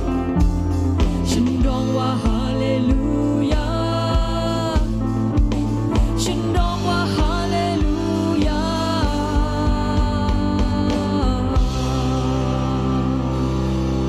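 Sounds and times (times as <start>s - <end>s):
full band playing: 0.0s - 9.8s
steady drum beat: 0.0s - 12.9s
woman singing into microphone: 0.9s - 14.0s.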